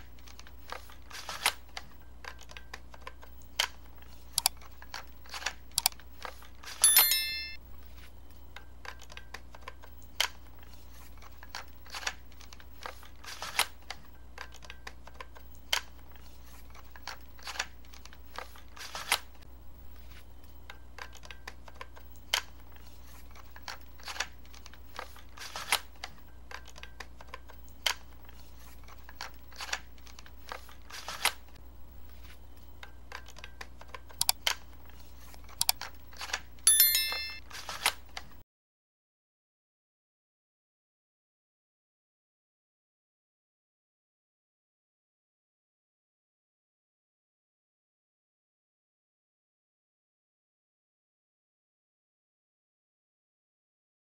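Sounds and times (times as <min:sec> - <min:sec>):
bright ringing ding: 0:06.8 - 0:07.6, 0:36.7 - 0:37.4
plastic toy clicks and snaps: 0:32.8 - 0:34.6, 0:35.5 - 0:38.0.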